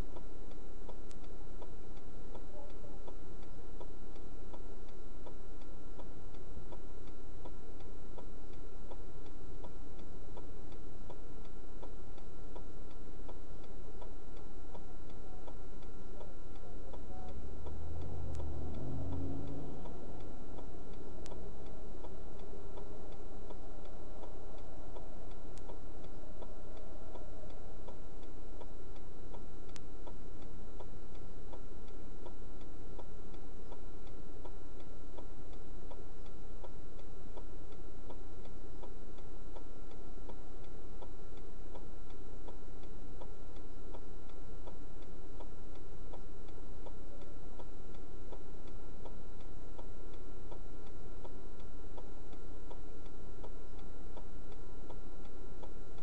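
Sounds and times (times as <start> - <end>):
electrical hum: 0.0 - 56.0
steady ticking: 0.0 - 56.0
low rumble: 16.5 - 33.0.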